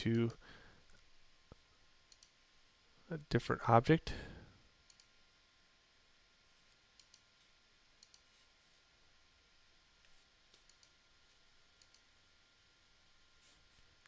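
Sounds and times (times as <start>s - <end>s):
faint mouse clicks: 2.1s - 2.3s, 4.9s - 5.1s, 7.0s - 7.3s, 8.0s - 8.3s, 10.0s - 11.0s, 11.8s - 12.0s.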